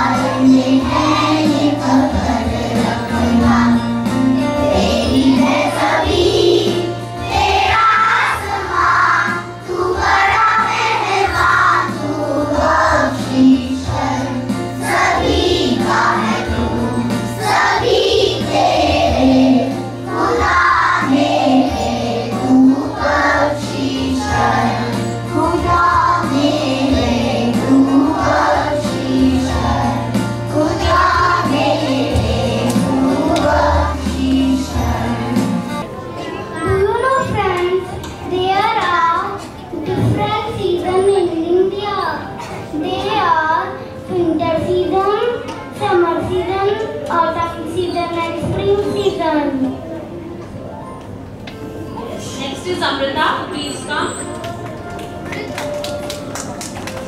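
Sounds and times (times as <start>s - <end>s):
children singing in unison: 0.0s - 3.9s, 4.5s - 35.6s.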